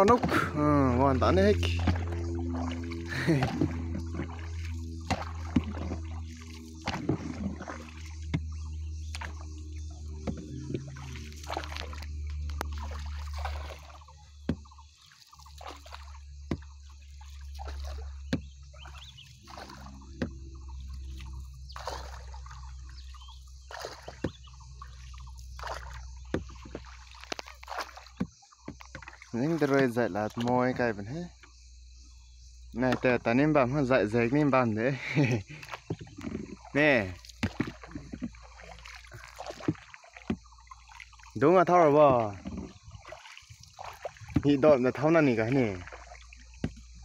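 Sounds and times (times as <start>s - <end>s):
steady low rumble: 0.0s - 14.9s
water sloshing and trickling: 0.0s - 47.0s.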